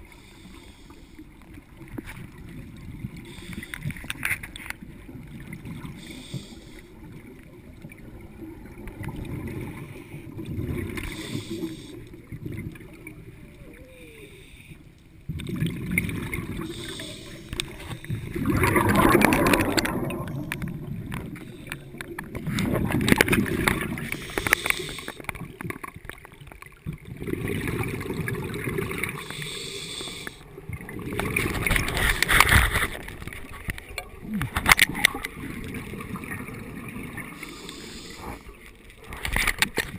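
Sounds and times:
gurgling bubbles: 0:01.4 - 0:14.1, 0:15.2 - 0:39.9
diver breathing through regulator: 0:06.0 - 0:07.0, 0:11.0 - 0:12.1, 0:16.5 - 0:18.6, 0:23.9 - 0:25.3, 0:29.1 - 0:30.4, 0:37.3 - 0:38.6.

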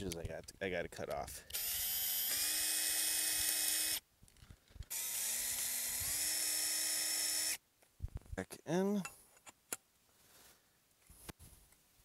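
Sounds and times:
cordless drill motor whining: 0:01.5 - 0:04.0, 0:04.9 - 0:07.6.

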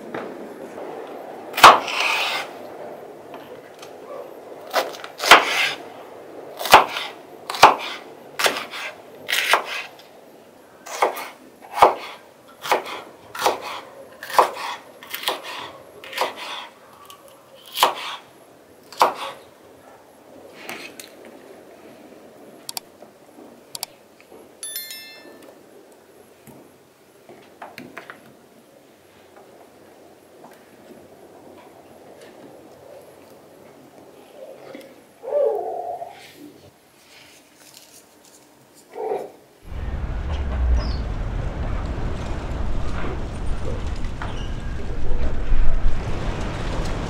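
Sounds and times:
knife slicing peppers: 0:17.6 - 0:18.2.

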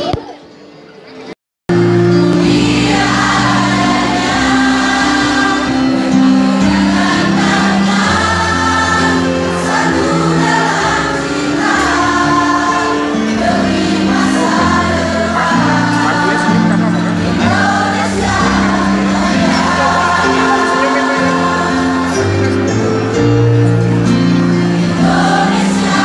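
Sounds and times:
mixed choir singing: 0:01.8 - 0:26.0.

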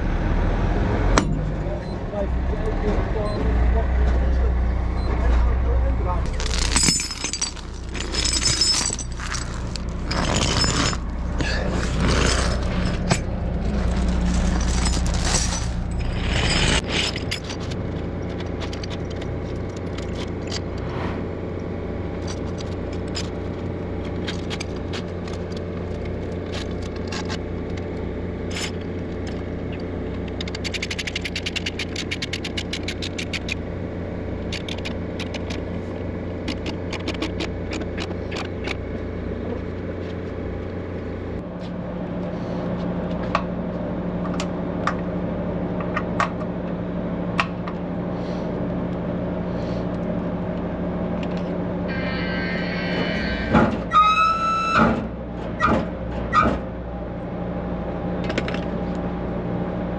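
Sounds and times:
rushing road noise: 0:00.0 - 0:53.9
truck diesel engine running: 0:00.0 - 0:54.0
cab and load rattling: 0:01.2 - 0:41.4.

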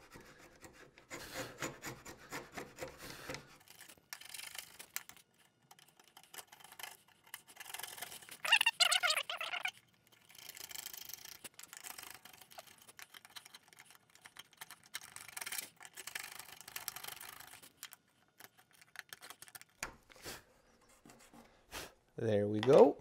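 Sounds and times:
router plane scraping wood: 0:00.0 - 0:03.6.

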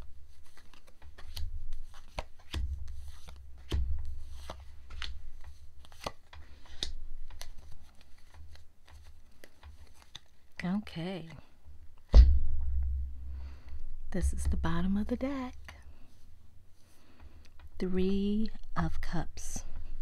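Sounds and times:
cards snapping and sliding on cloth: 0:00.3 - 0:10.6.

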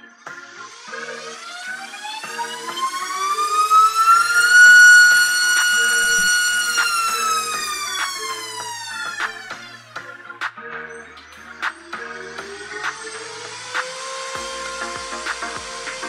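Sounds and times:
electric motor whine: 0:00.4 - 0:09.8, 0:11.9 - 0:16.0.

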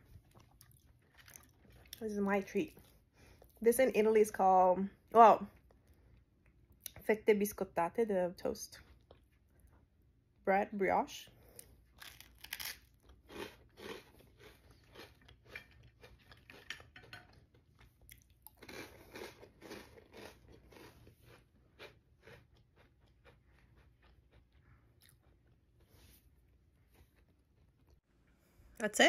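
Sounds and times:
crunchy toast being chewed: 0:00.0 - 0:02.0, 0:08.8 - 0:09.8, 0:11.5 - 0:28.0.

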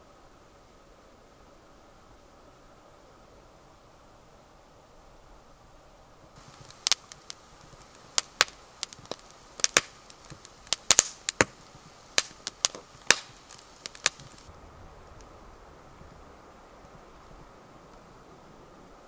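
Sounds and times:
fire crackling and popping: 0:06.4 - 0:15.4.

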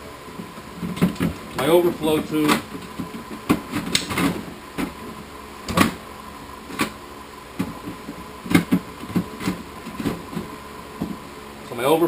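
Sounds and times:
hollow plastic knocks: 0:07.6 - 0:11.2.

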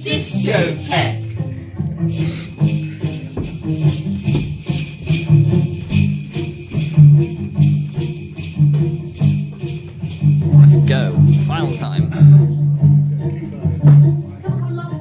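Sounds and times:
jingle bells shaking: 0:00.0 - 0:12.0
bouncy low bass melody: 0:02.8 - 0:15.0.

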